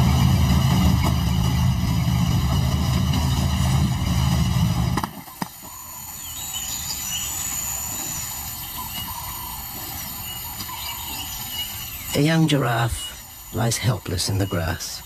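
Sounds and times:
vehicle engine running: 0.0s - 10.9s
birds chirping: 0.0s - 15.0s.

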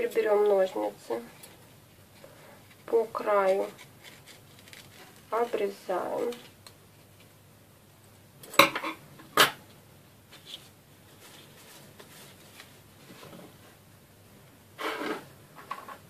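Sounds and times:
ribbon rustling: 1.4s - 5.7s, 10.3s - 13.5s.

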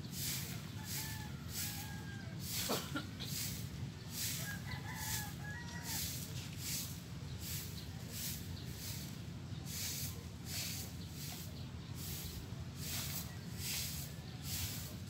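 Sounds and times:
broom sweeping dirt: 0.0s - 15.0s
rooster crowing: 0.8s - 2.6s, 4.4s - 6.2s.

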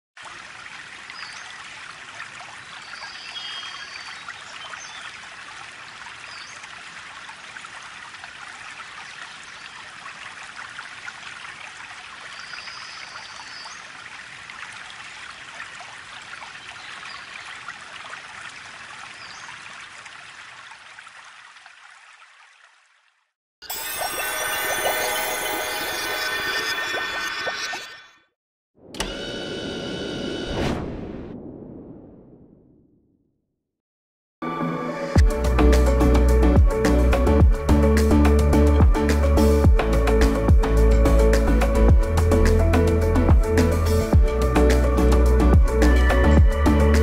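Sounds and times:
water trickling: 0.2s - 28.0s.

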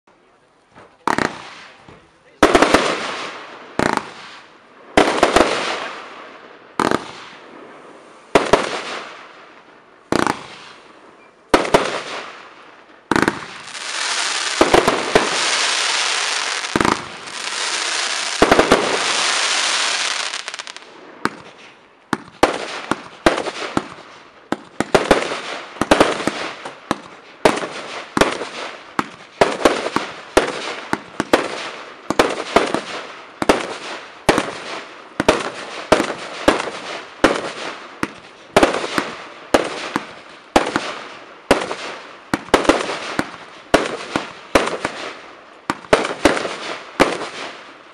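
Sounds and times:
firework shots: 0.8s - 9.5s, 10.1s - 10.9s, 11.5s - 47.8s
firework crackling: 13.1s - 47.7s.

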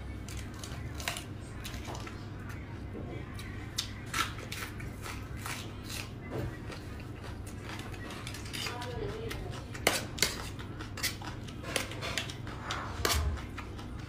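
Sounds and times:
metal spoon scraping a pan: 9.7s - 13.4s.

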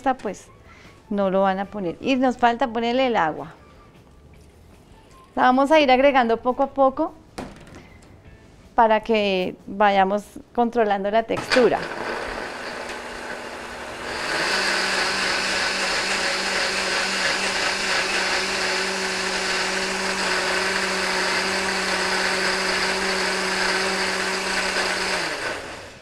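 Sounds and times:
blender motor running: 11.4s - 26.0s.

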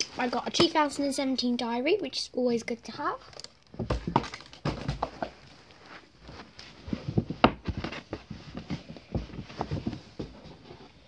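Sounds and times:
knocks and rustles of handling: 3.3s - 11.0s.

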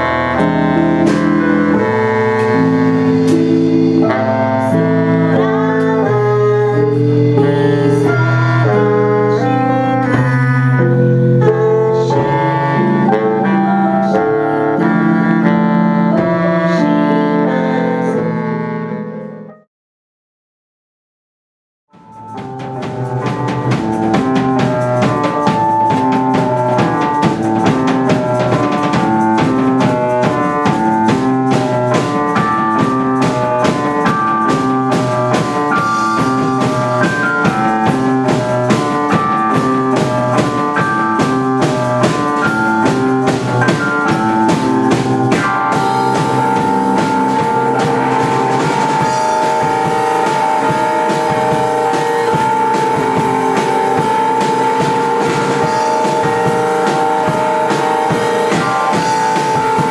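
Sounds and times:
drum kit beat: 0.0s - 9.1s, 21.9s - 59.9s
saxophone: 0.0s - 19.5s, 22.0s - 59.9s
keyboard: 0.0s - 19.7s, 22.0s - 59.9s.

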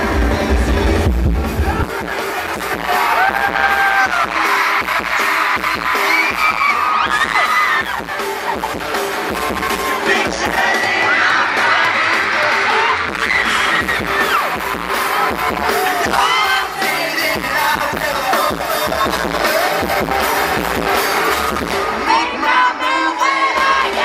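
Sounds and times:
bass guitar: 0.0s - 22.5s
drums: 0.0s - 24.0s
electric guitars: 0.0s - 24.0s
person singing: 9.6s - 24.0s.

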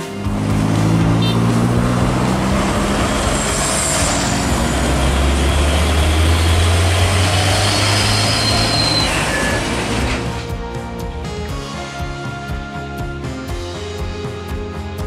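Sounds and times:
diesel truck engine driving past: 0.0s - 10.5s
road noise: 0.0s - 11.6s.

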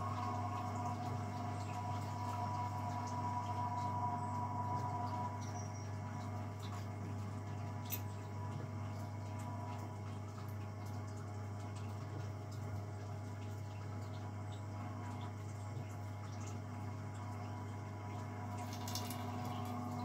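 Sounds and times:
electric pump humming: 0.0s - 20.0s
liquid trickling: 0.0s - 20.0s.

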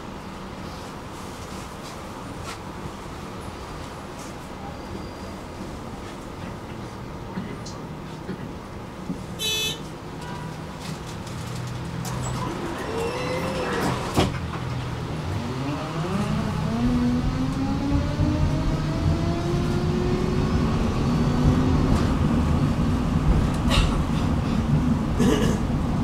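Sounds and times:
tram running rumble: 0.0s - 26.0s
tram motors whining: 12.0s - 25.8s.

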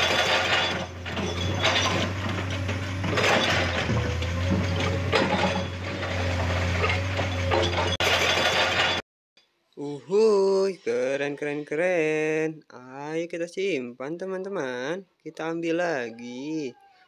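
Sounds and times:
diesel engine hum: 0.0s - 8.0s
hydraulic breaker pounding rock: 0.0s - 9.0s.

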